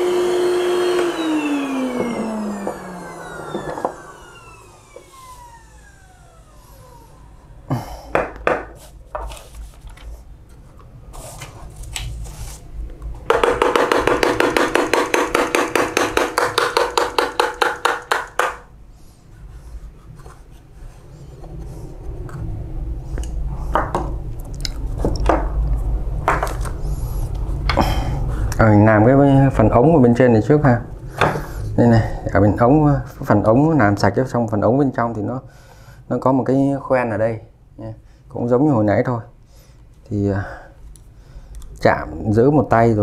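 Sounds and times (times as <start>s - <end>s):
steady machine hum: 0.0s - 9.2s, 10.2s - 33.8s.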